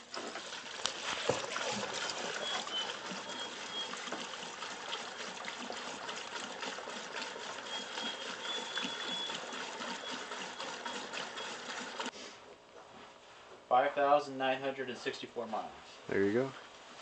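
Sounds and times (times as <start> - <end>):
gasoline pouring through funnel: 0.0 - 12.1.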